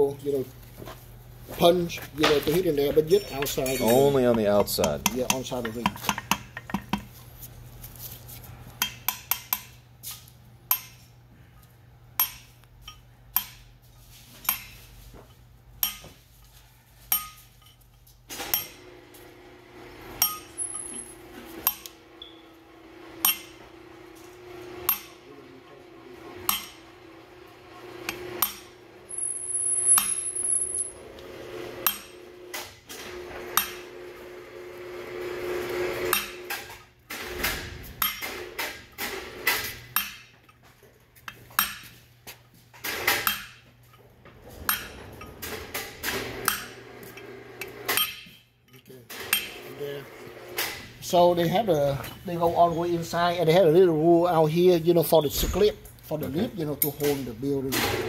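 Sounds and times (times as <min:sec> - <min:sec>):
hammer striking metal punch: 0:03.9 - 0:07.1, 0:08.8 - 0:09.8, 0:10.7 - 0:11.0, 0:12.2 - 0:12.5, 0:20.2 - 0:21.9, 0:23.2 - 0:23.6, 0:24.9 - 0:25.2, 0:26.5 - 0:26.8, 0:28.1 - 0:28.7, 0:29.9 - 0:30.2, 0:33.6 - 0:33.8, 0:36.1 - 0:36.5, 0:38.0 - 0:38.4, 0:47.9 - 0:48.4.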